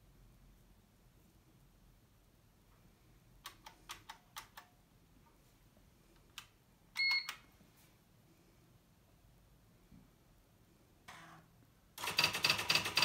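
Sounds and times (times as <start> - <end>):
typewriter keys clicking: 12.0 - 13.0.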